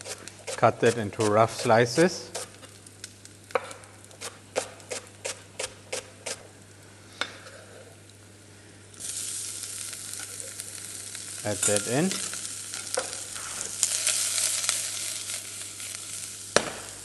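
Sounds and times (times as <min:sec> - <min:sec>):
garlic sizzling in oil: 0:07.6 - 0:17.0.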